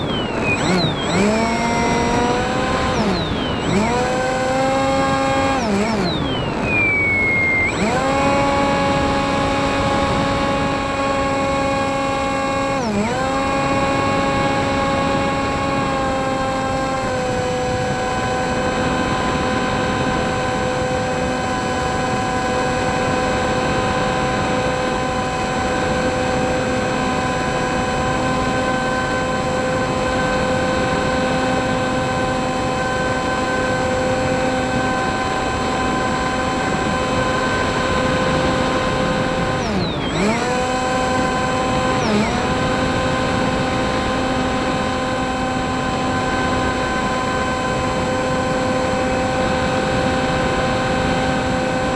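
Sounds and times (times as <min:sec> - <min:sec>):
model plane motor droning: 0:00.0 - 0:51.9.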